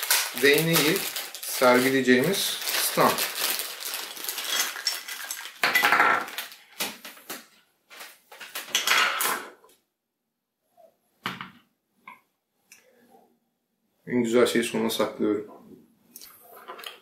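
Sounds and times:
plastic pieces clattering on table: 0.0s - 2.0s, 2.6s - 9.5s
plastic bag crinkling: 0.0s - 8.8s.

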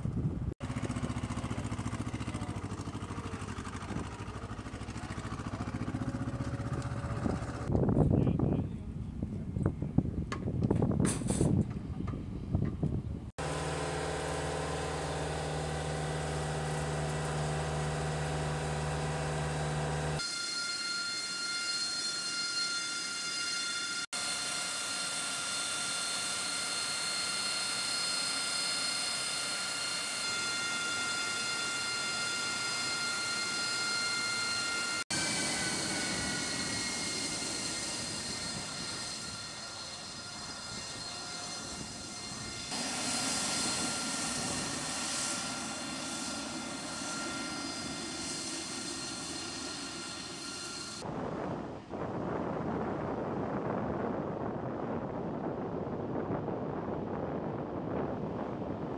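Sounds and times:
engine idling: 0.6s - 7.7s
high-pitched whine: 14.8s - 52.8s.

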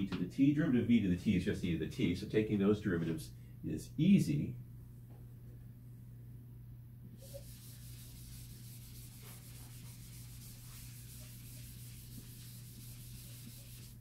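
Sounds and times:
eraser rubbing on blackboard: 7.2s - 14.0s.

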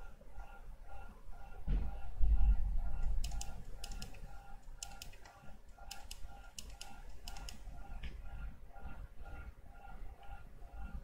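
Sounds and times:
keyboard typing: 3.0s - 7.9s.

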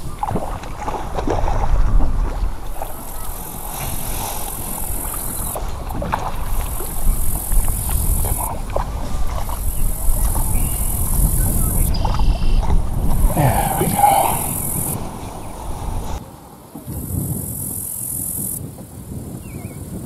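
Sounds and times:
rustling through tall grass: 0.0s - 11.4s
wind buffeting microphone: 0.0s - 20.0s.

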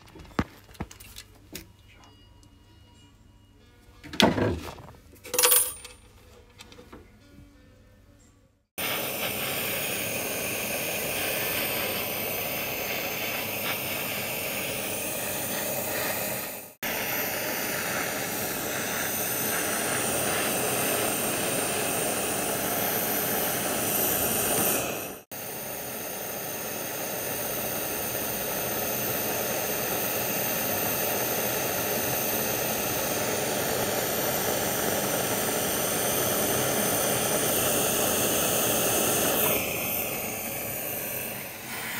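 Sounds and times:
gas torch hissing: 8.8s - 41.9s.

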